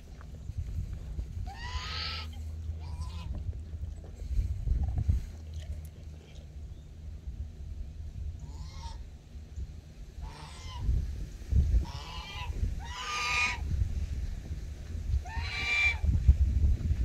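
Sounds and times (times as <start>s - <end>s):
low rumble: 0.0s - 12.9s
farm animal calls: 1.4s - 4.1s, 8.4s - 9.1s, 10.2s - 10.9s, 11.8s - 13.7s, 15.2s - 16.1s.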